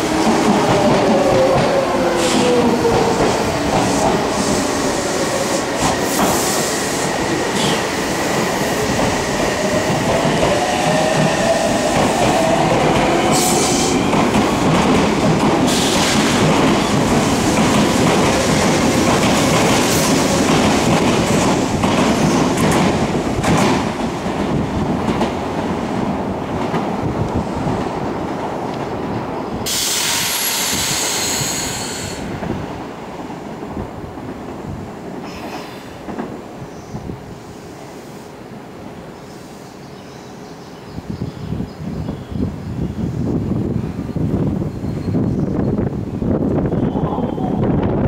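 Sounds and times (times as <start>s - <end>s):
train rolling noise: 0.0s - 48.0s.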